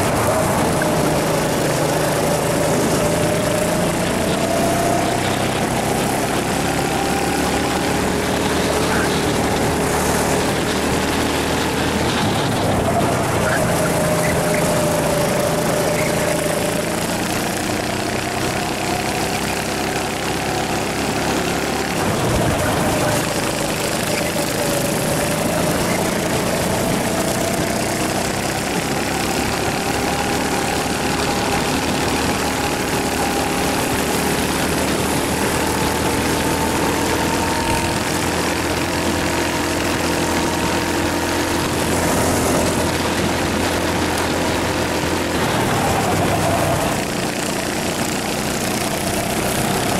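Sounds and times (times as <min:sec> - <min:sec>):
go-kart engine running hard: 0:00.0 - 0:49.9.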